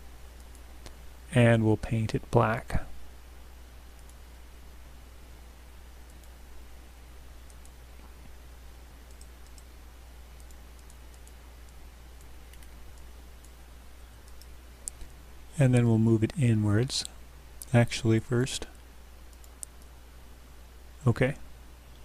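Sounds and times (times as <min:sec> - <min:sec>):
microphone hiss: 0:00.0 - 0:22.0
computer mouse clicks: 0:00.4 - 0:01.0, 0:04.0 - 0:04.2, 0:06.0 - 0:06.4, 0:07.4 - 0:07.8, 0:09.0 - 0:09.7, 0:10.4 - 0:13.6, 0:14.2 - 0:15.1, 0:19.3 - 0:19.9.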